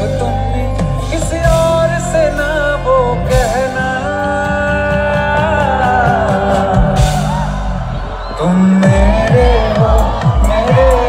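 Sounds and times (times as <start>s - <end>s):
bass: 0.0s - 11.0s
drums: 0.0s - 11.0s
man singing live: 0.0s - 11.0s.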